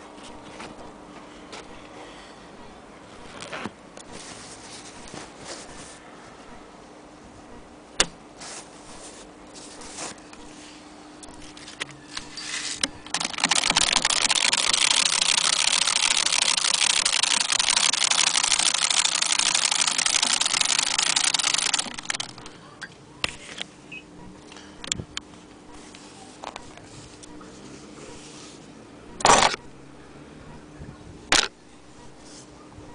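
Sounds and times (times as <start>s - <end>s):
sharp clicks: 12.8s - 22.5s
sewing machine clatter: 13.0s - 22.5s.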